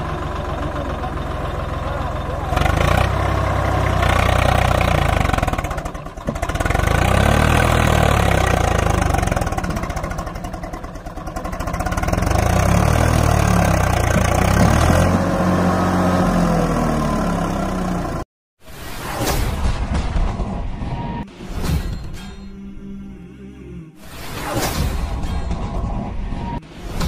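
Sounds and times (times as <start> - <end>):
tractor diesel engine revving: 0.0 - 18.3.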